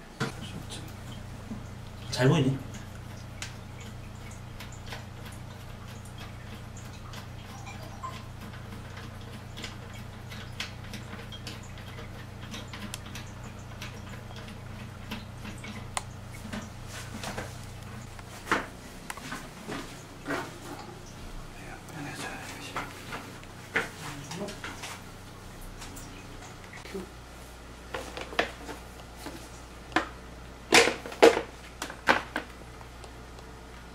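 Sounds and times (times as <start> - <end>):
steady low hum: 0.0 - 33.9
plastic clicks and ticks: 2.8 - 16.7.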